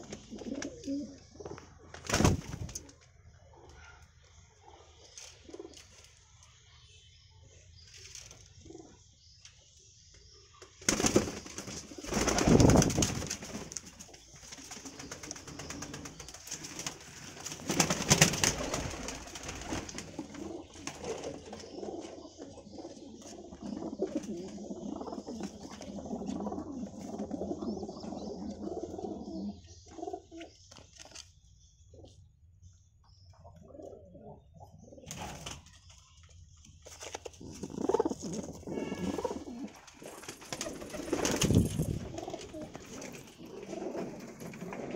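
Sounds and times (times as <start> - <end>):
pigeons cooing: 0.0 - 1.7, 14.7 - 30.6, 33.5 - 35.6, 37.3 - 44.9.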